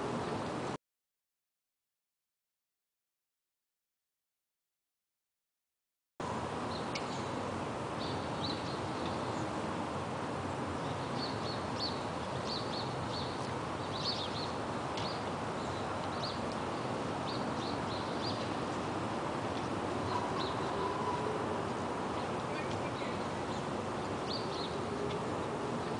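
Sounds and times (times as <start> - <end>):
city background hum: 0.0 - 0.8, 6.2 - 25.9
small birds chirping: 8.0 - 9.6, 10.8 - 25.9.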